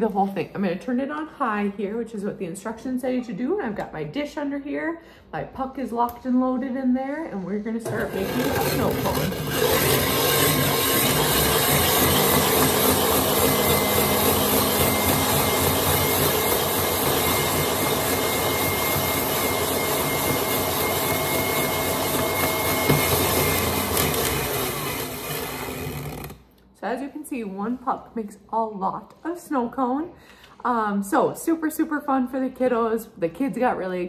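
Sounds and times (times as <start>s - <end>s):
mixer motor hum: 7.8s - 26.4s
ice shaving grind: 7.9s - 26.4s.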